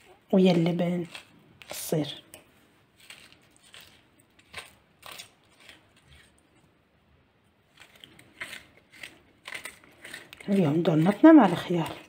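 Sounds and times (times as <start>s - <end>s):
metal corer scraping cucumber: 7.8s - 12.0s.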